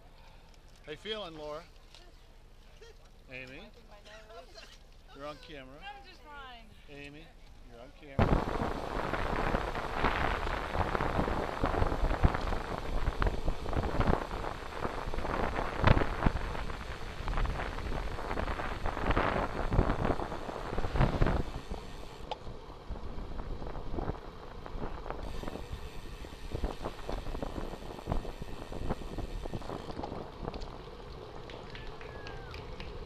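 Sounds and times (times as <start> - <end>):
wind buffeting microphone: 8.2 - 33.0.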